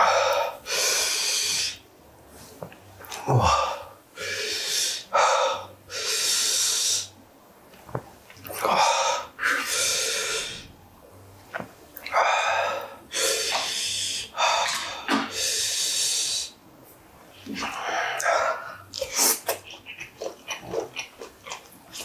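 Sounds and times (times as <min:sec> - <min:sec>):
man breathing hard and hissing: 0:00.0 - 0:01.8, 0:03.2 - 0:07.2, 0:08.6 - 0:10.7, 0:12.1 - 0:16.6, 0:17.5 - 0:19.6.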